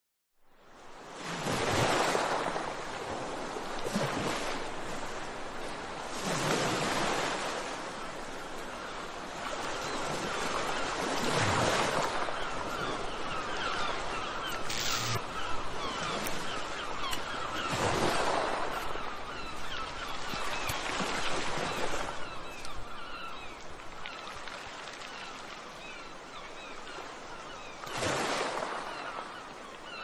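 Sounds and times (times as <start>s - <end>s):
ocean waves breaking: 0.8s - 26.0s, 27.8s - 29.4s
birds calling: 12.2s - 24.3s.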